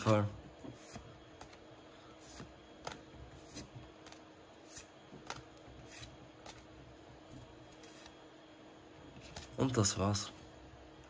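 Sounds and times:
cards sliding against each other: 0.0 - 6.7, 7.7 - 8.2.

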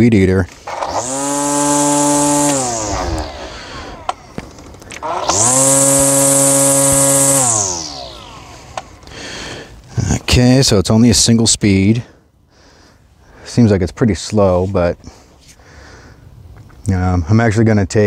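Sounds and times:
electric string trimmer motor: 0.5 - 9.9.

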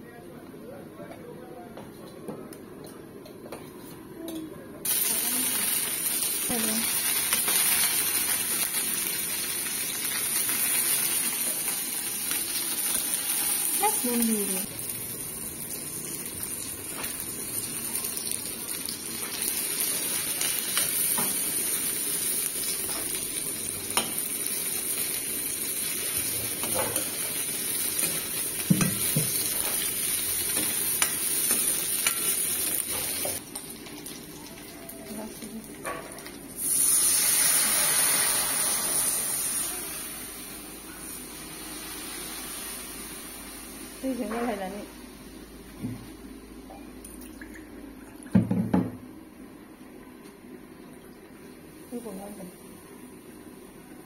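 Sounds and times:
onion sizzling in hot oil: 4.8 - 45.6.

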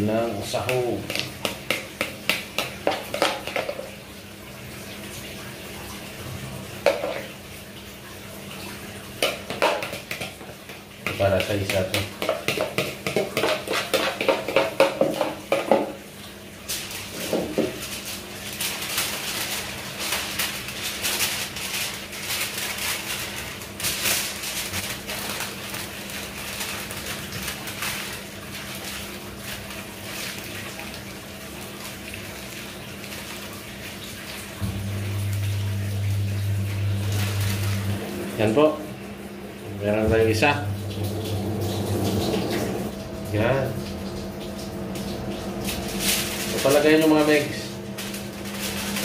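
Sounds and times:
aluminium foil crinkling: 16.6 - 34.4, 37.0 - 38.0, 45.6 - 49.0.

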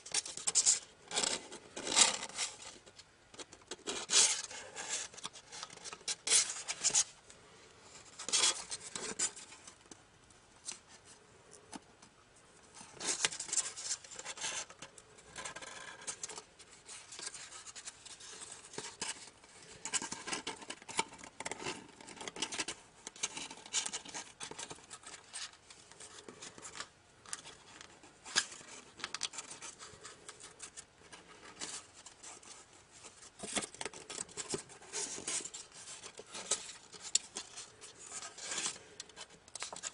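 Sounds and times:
paper crinkling and rustling: 15.4 - 39.9.

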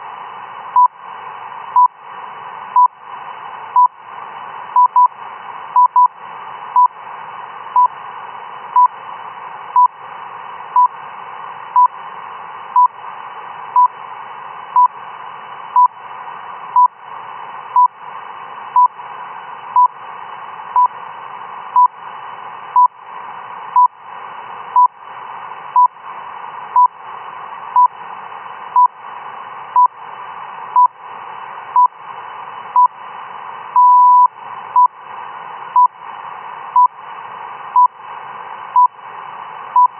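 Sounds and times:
radio hiss: 0.0 - 39.9
long radio beep: 33.8 - 34.9
short radio beeps: 33.8 - 34.9.

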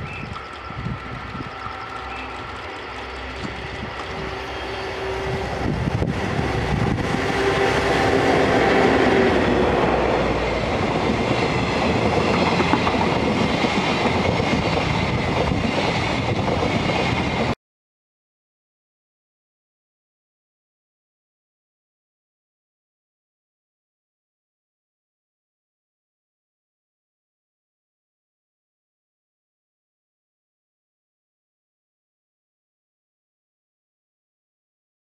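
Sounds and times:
electric locomotive passing: 0.0 - 17.6
wheels on rails: 0.0 - 17.6.

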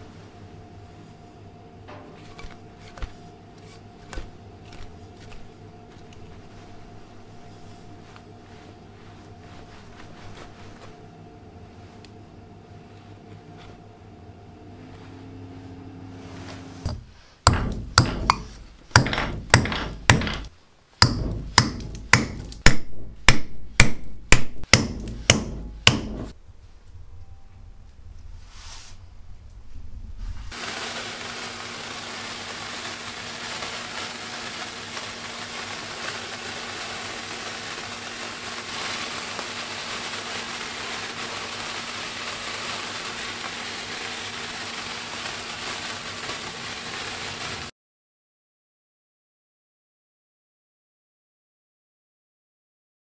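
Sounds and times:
hammer striking nail into wood: 16.9 - 26.3
sparklers fizzing: 30.5 - 47.7.

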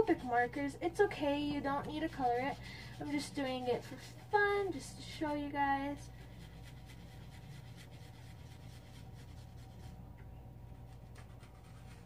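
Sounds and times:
low steady hum: 0.0 - 12.0
marker scratching on paper: 6.2 - 10.0, 10.9 - 12.0.

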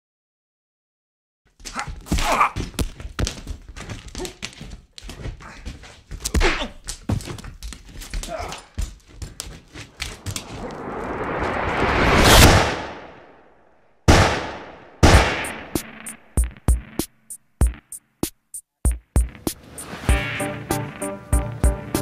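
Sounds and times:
rush of noise: 10.0 - 13.7.

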